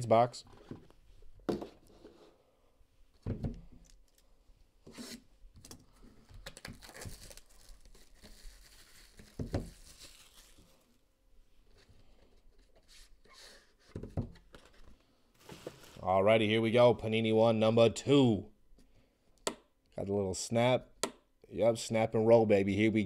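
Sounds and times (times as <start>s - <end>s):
plastic wrapping tearing and crinkling: 6.5s - 10.9s.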